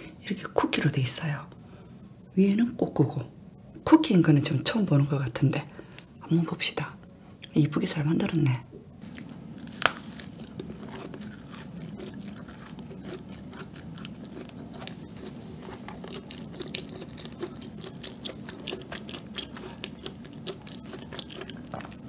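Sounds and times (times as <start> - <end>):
crisp cookie crunches: 9.0 - 22.0
soft chewing: 9.0 - 22.0.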